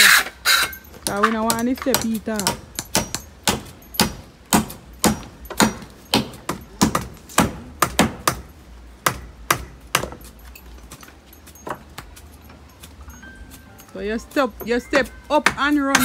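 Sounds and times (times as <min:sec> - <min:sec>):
hand tool striking wood: 0:00.0 - 0:10.4, 0:14.6 - 0:16.0.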